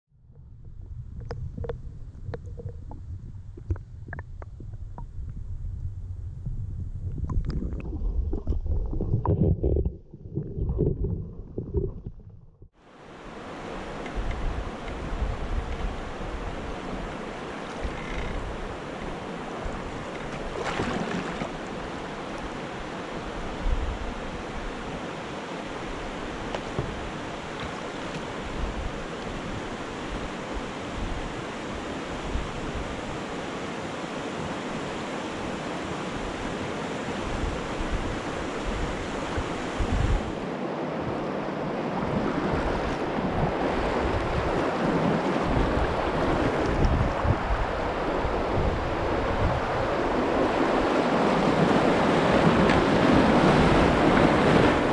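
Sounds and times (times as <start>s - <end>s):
wind buffeting microphone: 0.1s - 12.7s, 13.8s - 22.0s, 28.3s - 33.4s, 37.2s - 41.2s, 42.0s - 54.9s
river water rushing over rapids: 12.8s - 54.9s.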